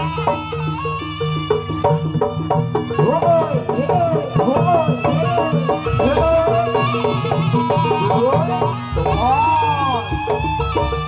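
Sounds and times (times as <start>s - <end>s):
drums: 0.0s - 11.0s
gamelan percussion: 0.0s - 11.0s
wavering melody line: 0.0s - 11.0s.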